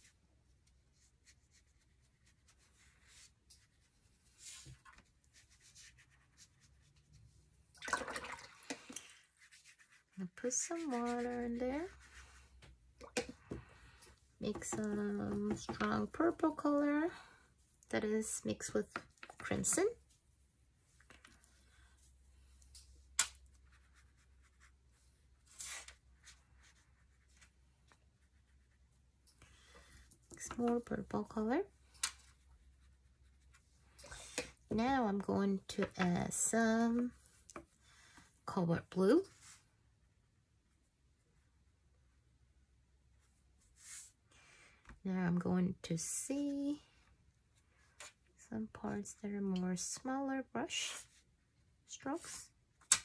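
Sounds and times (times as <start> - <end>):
brush stroking on paper: 0.0 - 7.6, 9.0 - 12.7, 23.6 - 30.8, 32.2 - 35.3, 43.6 - 44.2.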